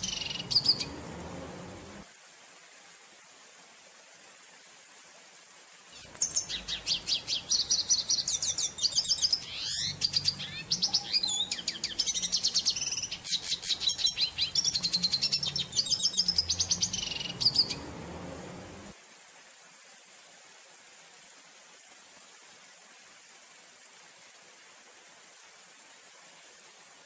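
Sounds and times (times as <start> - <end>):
bird twittering song: 0.0 - 2.0, 5.9 - 18.9.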